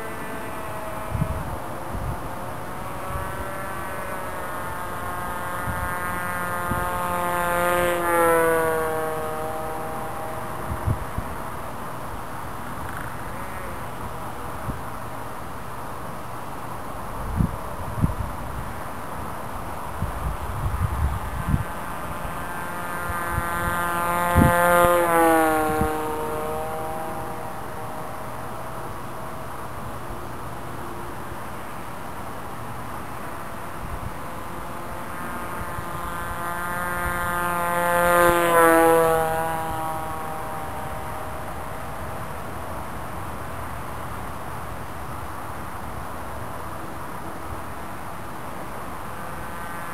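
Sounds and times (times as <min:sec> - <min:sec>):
model aeroplane motor whining: 0:00.0 - 0:49.9
wind buffeting microphone: 0:00.7 - 0:04.0, 0:08.8 - 0:11.6, 0:17.2 - 0:18.8, 0:19.9 - 0:27.5.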